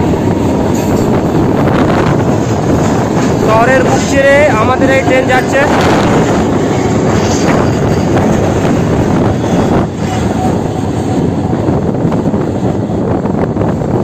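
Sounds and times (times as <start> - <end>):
train wheels rushing on rail: 0.0 - 14.0.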